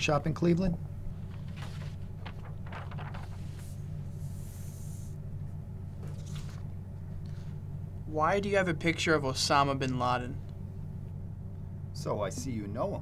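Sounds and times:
steady low hum: 0.0 - 13.0
paper rustling: 1.2 - 5.1, 6.0 - 6.7.

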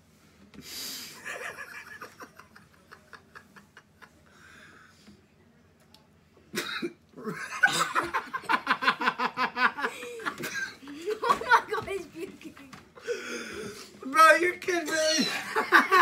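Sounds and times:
laughter: 1.2 - 4.3, 7.2 - 12.0, 15.3 - 16.0
man coughing: 6.6 - 7.0.

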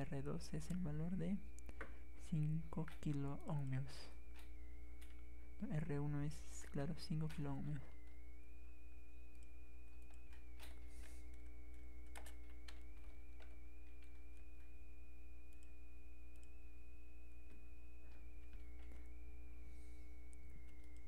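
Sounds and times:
high-pitched whine: 0.0 - 21.0
low electrical hum: 0.0 - 21.0
keyboard and mouse clicks: 9.3 - 14.7.

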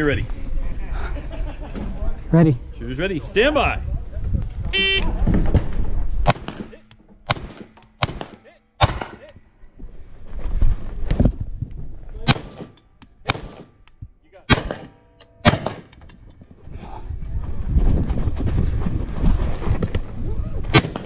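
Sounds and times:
rifle shots: 6.2 - 9.2, 12.2 - 13.8, 14.5 - 16.1, 20.7 - 21.0.

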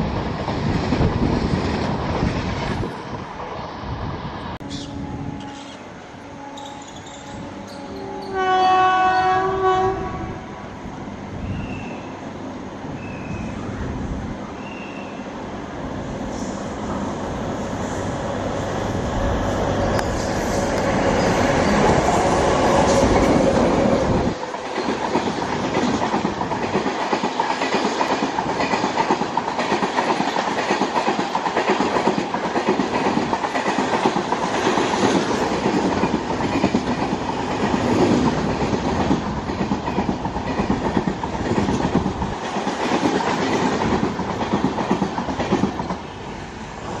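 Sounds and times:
train wheels clattering over rails: 20.0 - 46.2.

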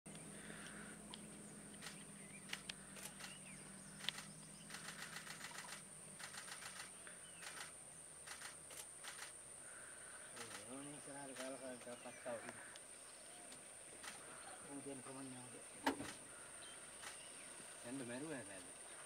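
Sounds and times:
faint bird chirps: 0.1 - 8.5, 9.1 - 19.0
vehicle engine idling: 0.1 - 13.0
insect drone: 0.1 - 19.0
runs of sharp clicks: 0.6 - 3.4, 4.0 - 9.4, 10.4 - 12.9, 13.5 - 14.4.

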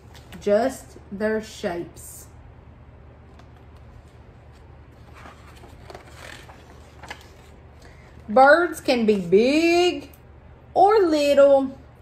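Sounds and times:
low steady hum: 0.0 - 12.0
book pages rustling: 3.2 - 8.3.

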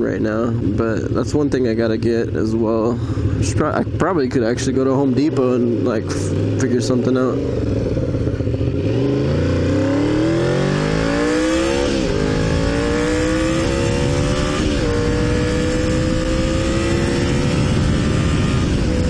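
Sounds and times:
motorcycle engine revving: 0.0 - 19.0
wind rushing over microphone: 7.4 - 19.0.

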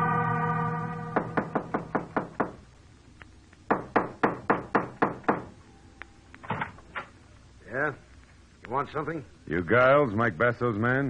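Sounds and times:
organ music: 0.0 - 2.4
knocking on a door: 1.2 - 2.6, 3.7 - 5.5.

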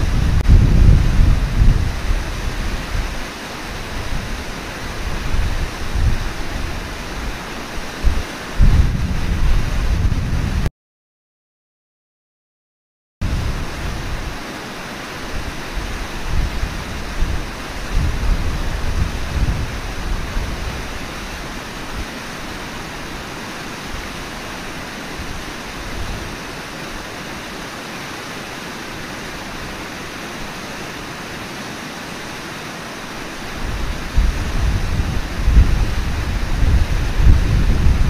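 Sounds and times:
river water flowing: 0.0 - 10.6, 13.2 - 38.0
wind buffeting microphone: 0.0 - 10.7, 13.2 - 14.4, 15.2 - 26.4, 33.4 - 38.0.

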